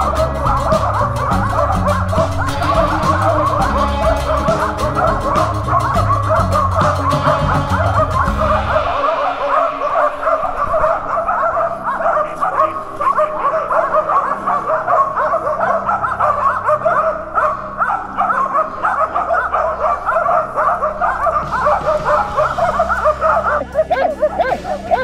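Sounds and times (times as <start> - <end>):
dogs barking: 0.0 - 25.0.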